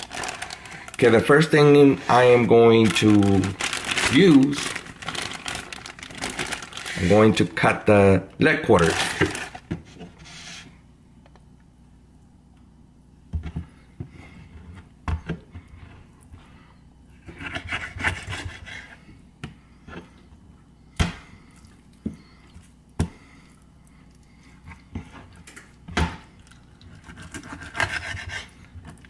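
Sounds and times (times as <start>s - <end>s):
scratchy rubbing: 27.0s - 28.6s.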